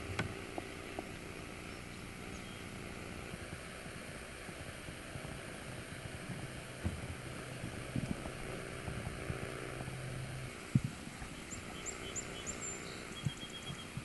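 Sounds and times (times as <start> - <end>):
faint steady hiss: 0.0 - 14.0
low hum: 0.0 - 14.0
small bird chirping: 0.6 - 2.8, 11.2 - 14.0.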